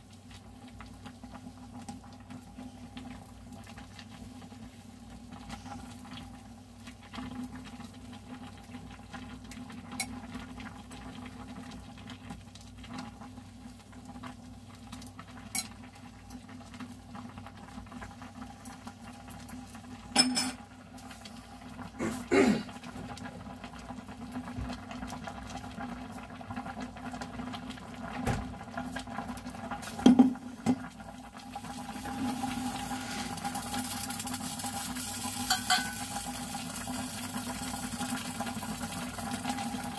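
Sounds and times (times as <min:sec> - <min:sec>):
soft bubbling of simmering pot: 0:00.0 - 0:39.9
knocks and clinks against pot: 0:20.2 - 0:20.6, 0:35.5 - 0:36.1.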